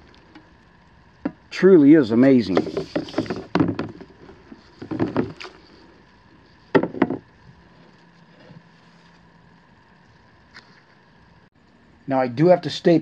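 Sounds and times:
griddle plate knocking in tub: 6.7 - 7.2.

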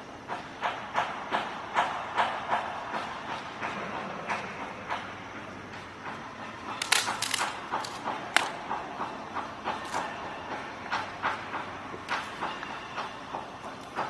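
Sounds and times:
panda chewing bamboo: 6.6 - 8.6, 9.7 - 10.1.

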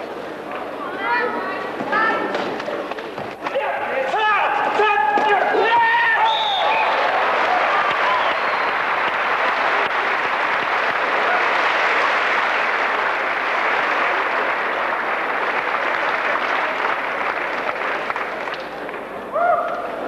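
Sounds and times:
large crowd applauding: 4.8 - 19.3.

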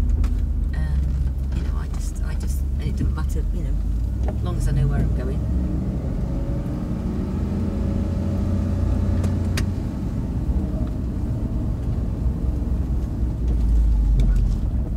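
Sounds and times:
car engine and tyre noise: 0.0 - 14.9.

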